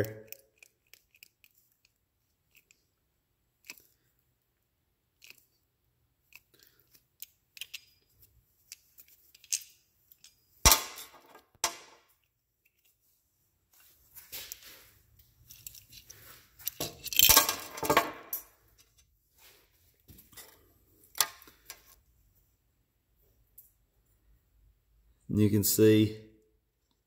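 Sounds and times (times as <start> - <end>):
hand tool clicks and creaks: 0.0 - 3.0, 3.6 - 4.1, 5.1 - 5.6, 6.2 - 13.0, 15.4 - 19.1, 20.3 - 22.0.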